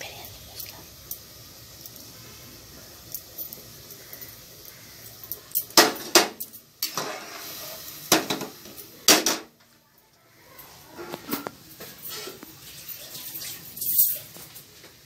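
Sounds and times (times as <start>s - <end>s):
utensil clanking in metal pot: 5.3s - 9.5s.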